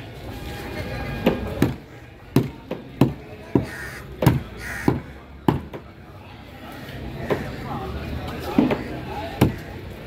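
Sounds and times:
crow cawing: 0:03.6 - 0:05.2.

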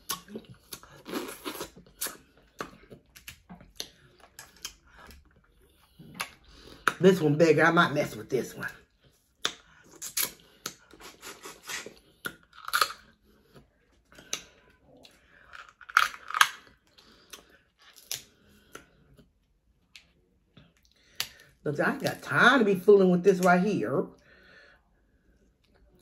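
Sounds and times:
crunching and chewing: 0:00.0 - 0:07.0, 0:08.7 - 0:21.5
crab shell cracking: 0:12.3 - 0:13.0, 0:15.5 - 0:16.8.

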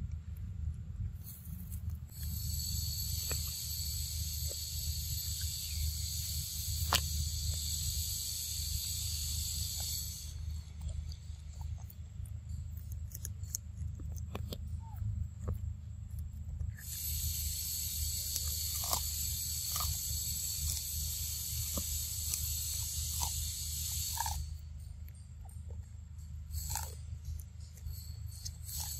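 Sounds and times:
high-pitched insect drone: 0:02.2 - 0:11.0, 0:16.8 - 0:25.2, 0:26.4 - 0:28.9.

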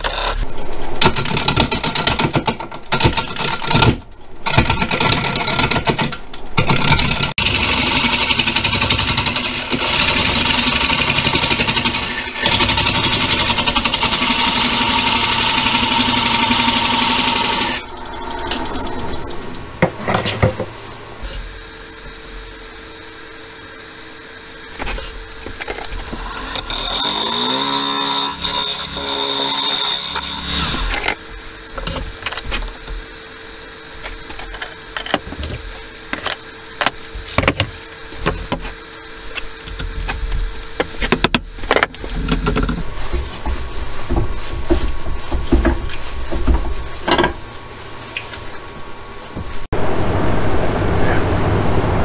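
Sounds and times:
tool scraping spinning wood: 0:24.7 - 0:48.0.

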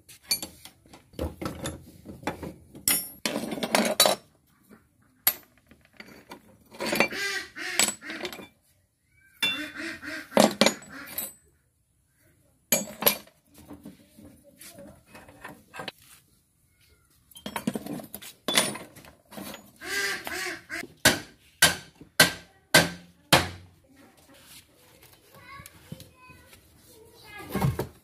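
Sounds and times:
metal tools clinking: 0:00.2 - 0:04.3, 0:05.2 - 0:07.1, 0:07.8 - 0:08.6, 0:10.4 - 0:11.5, 0:12.7 - 0:13.4, 0:17.3 - 0:19.8
sharp metal knocks: 0:21.0 - 0:23.6.

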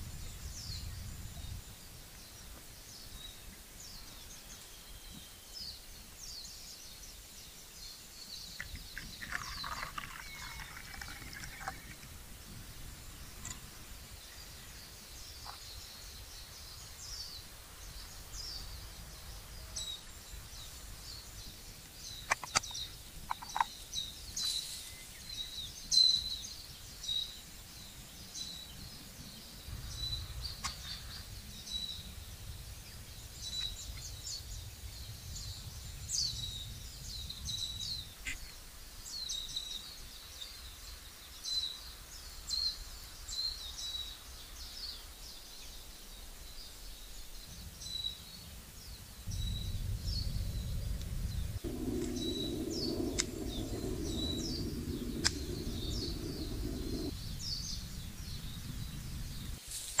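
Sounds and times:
small birds chirping: 0:00.0 - 1:00.0
lower falling bird call: 0:08.6 - 0:12.3, 0:49.3 - 1:00.0.

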